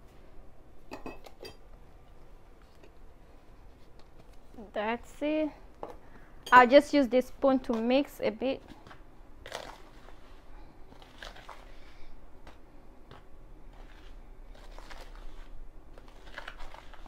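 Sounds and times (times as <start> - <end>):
spoon scraping flour in bowl: 13.7 - 15.5.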